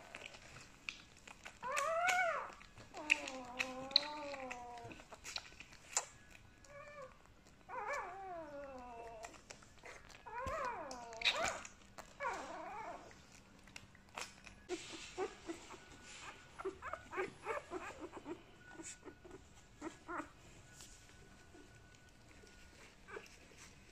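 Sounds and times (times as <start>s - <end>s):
puppies crying and whimpering: 1.3s - 13.5s, 14.1s - 23.9s
puppies squeaking: 1.4s - 23.9s.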